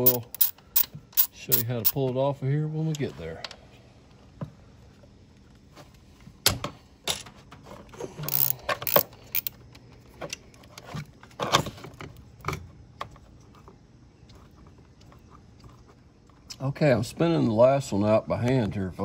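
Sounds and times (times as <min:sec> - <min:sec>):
hand ratchet clicking: 0:00.0 - 0:02.0, 0:08.3 - 0:09.5
metal clinks and knocks: 0:00.0 - 0:02.0, 0:08.2 - 0:09.6.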